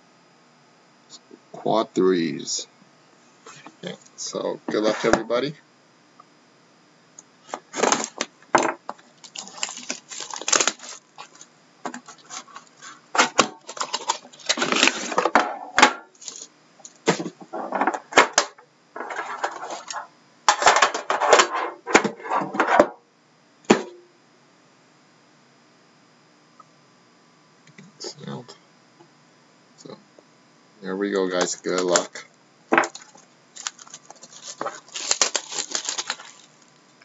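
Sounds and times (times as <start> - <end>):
shrink wrap crinkling and tearing: 9.2 - 15.2, 16.2 - 16.5, 32.8 - 36.8.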